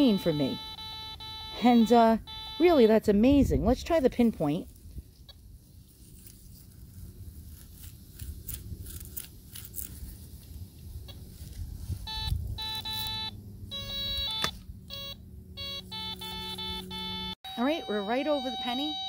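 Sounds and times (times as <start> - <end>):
metal detector chirping beeps: 0.0 - 3.7, 12.0 - 19.0.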